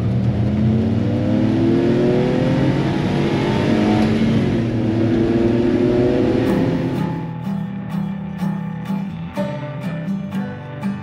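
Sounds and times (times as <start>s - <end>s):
small truck engine accelerating: 0.0s - 7.9s.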